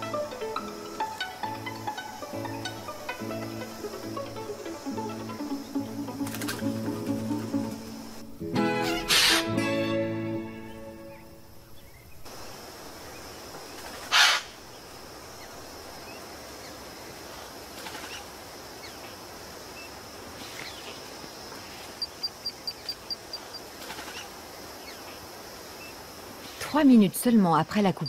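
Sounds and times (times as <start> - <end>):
high insect hiss: 0.0 - 28.0
fast run of high ticks: 6.2 - 6.6.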